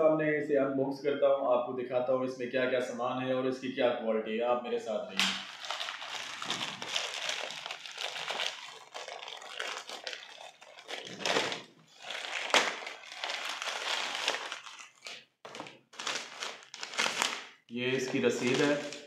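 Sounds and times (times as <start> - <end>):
plastic bag crinkling: 5.2 - 19.0.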